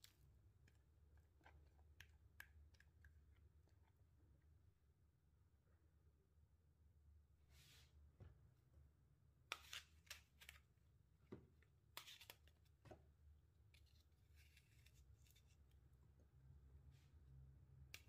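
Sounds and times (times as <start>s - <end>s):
kitchen clicks and scrapes: 11.9s - 12.6s.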